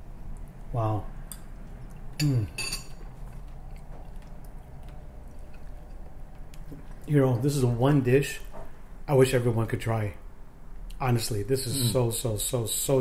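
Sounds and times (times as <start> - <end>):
low room hum: 0.0 - 13.0
utensil clinking on glass bowl: 2.2 - 3.1
man humming in appreciation: 11.7 - 12.0.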